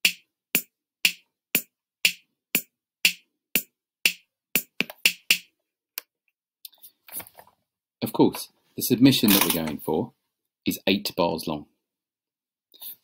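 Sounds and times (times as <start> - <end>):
drum machine beat: 0.0 - 5.5.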